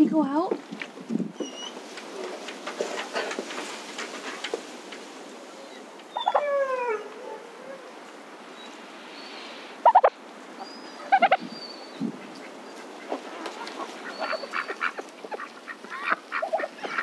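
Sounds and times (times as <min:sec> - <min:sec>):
turkeys gobbling: 0:09.4 - 0:11.5, 0:12.1 - 0:17.0.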